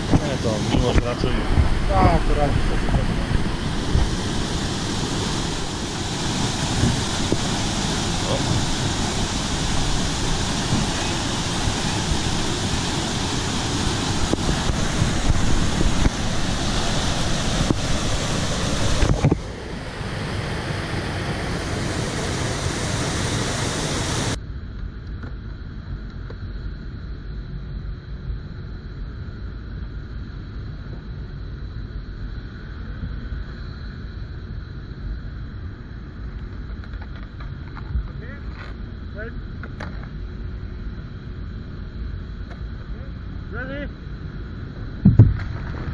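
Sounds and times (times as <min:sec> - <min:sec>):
rushing whitewater: 0:00.0 - 0:24.4
wind buffeting the microphone: 0:00.0 - 0:24.4.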